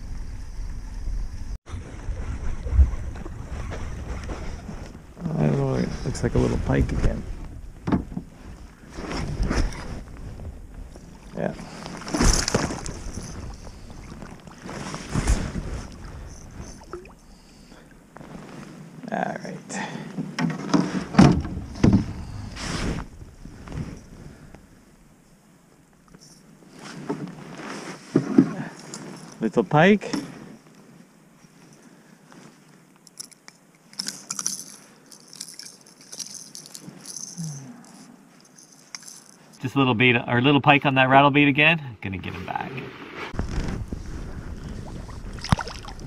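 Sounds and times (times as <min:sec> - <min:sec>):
wind rumbling on microphone: 0:00.0 - 0:17.2, 0:21.3 - 0:24.9, 0:42.8 - 0:46.0
fishing hooks clinking against pliers: 0:33.0 - 0:39.4.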